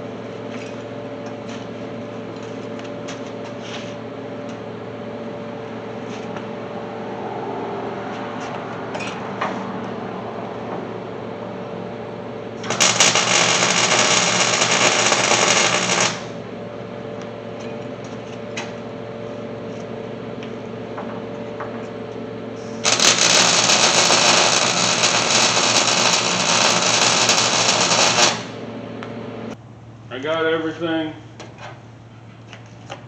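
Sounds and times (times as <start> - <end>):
steady low hum: 0.0 - 33.0
arc welder crackling: 12.5 - 16.5, 22.6 - 29.2.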